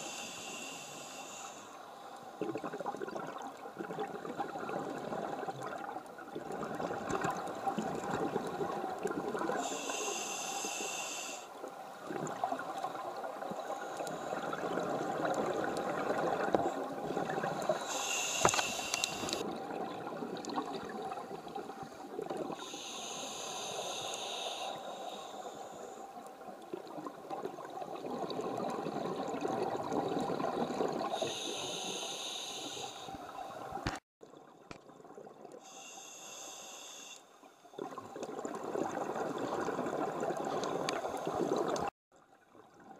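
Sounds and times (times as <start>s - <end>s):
regulator hissing inhale: 0.0s - 2.0s, 9.6s - 11.6s, 17.6s - 19.4s, 22.6s - 26.2s, 31.1s - 33.7s, 35.6s - 37.4s
bubbling water: 2.4s - 9.7s, 12.0s - 17.9s, 18.5s - 22.7s, 26.4s - 31.2s, 37.7s - 41.9s.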